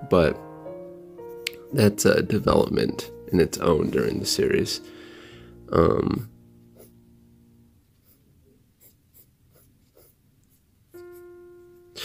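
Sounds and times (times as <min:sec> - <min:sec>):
background music: 0:00.0 - 0:08.2, 0:10.9 - 0:12.0
pencil scratching on paper: 0:07.9 - 0:11.3.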